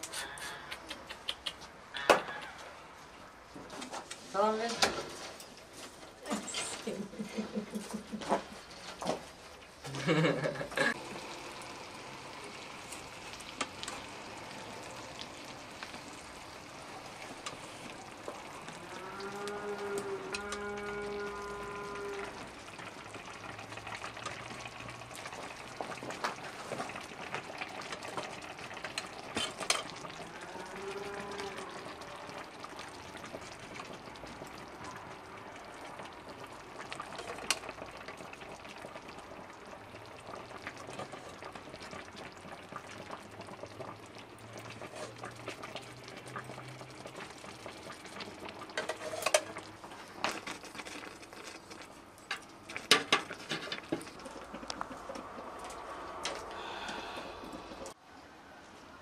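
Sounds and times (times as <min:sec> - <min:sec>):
baklava sizzling in metal tray: 0:04.3 - 0:18.8, 0:21.4 - 0:30.5, 0:40.3 - 0:57.2.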